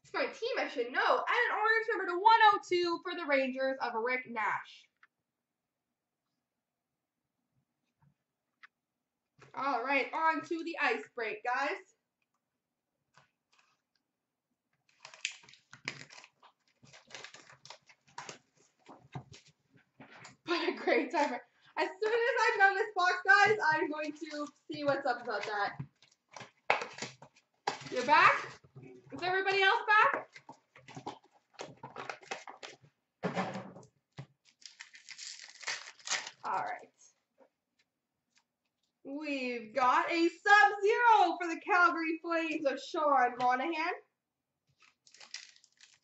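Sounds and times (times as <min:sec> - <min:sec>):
plastic wrapping crinkling and tearing: 0:14.8 - 0:19.6, 0:24.0 - 0:28.6, 0:30.3 - 0:32.8, 0:34.3 - 0:37.0, 0:44.7 - 0:46.0.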